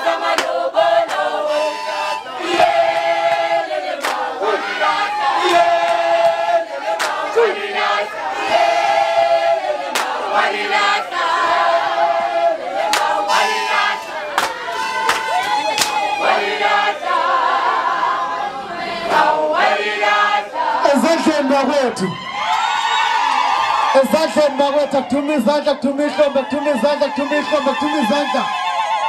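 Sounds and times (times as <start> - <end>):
women singing in chorus: 0.0 - 20.8
hand claps: 0.3 - 1.2, 4.0 - 4.3, 7.0 - 7.2, 9.9 - 10.2, 12.9 - 13.2, 14.4 - 16.0.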